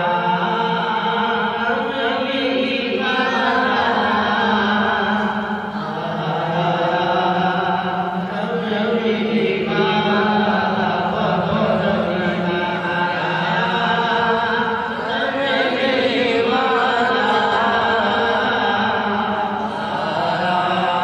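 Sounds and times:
man singing into a microphone: 0.0 - 21.0.

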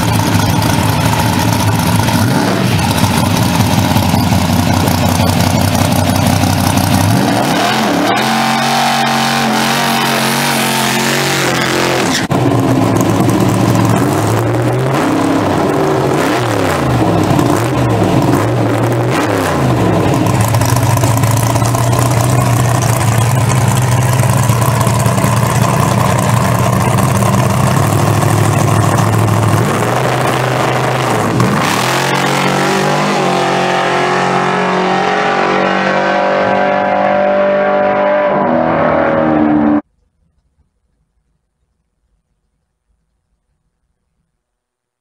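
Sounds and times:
truck engine revving: 0.0 - 39.8.

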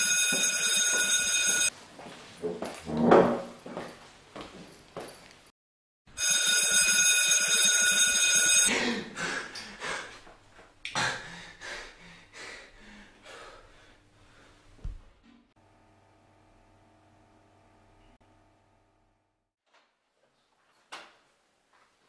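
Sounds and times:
loud alarm ringing: 0.0 - 1.7, 6.2 - 8.7.

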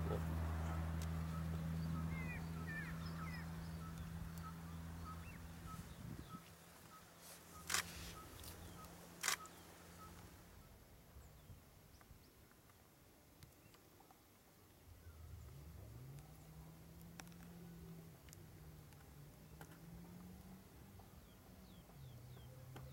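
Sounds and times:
low steady hum: 0.0 - 12.4
quick bird chirps: 0.6 - 10.3.

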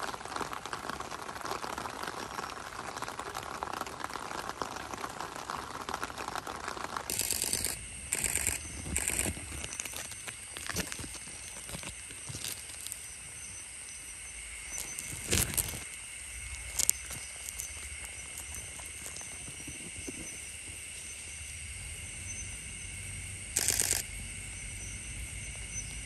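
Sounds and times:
night insects trilling: 0.0 - 26.0
short rustling bursts: 6.3 - 13.0, 14.7 - 20.0.

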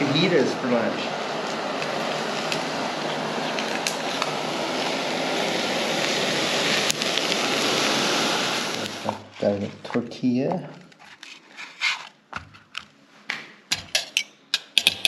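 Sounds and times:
food sizzling in frying pans: 0.0 - 9.2
stove burners hissing: 0.0 - 11.1.

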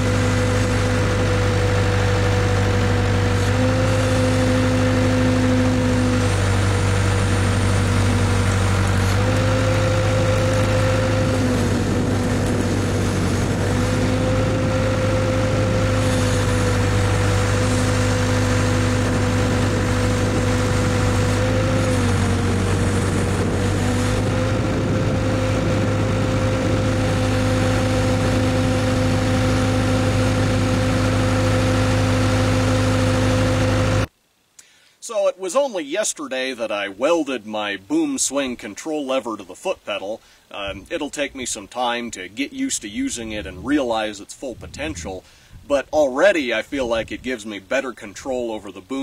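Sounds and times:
backhoe engine running: 0.0 - 34.1, 42.3 - 45.6.

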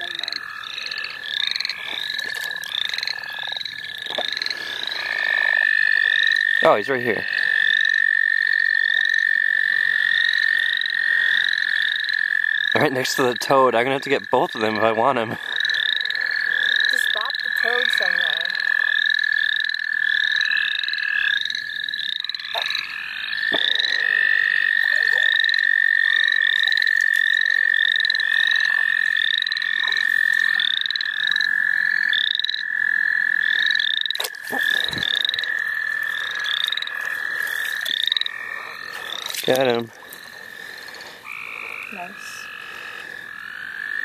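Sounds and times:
frogs short rising calls: 0.0 - 12.8, 14.2 - 44.0
toad trilling: 0.0 - 44.0.

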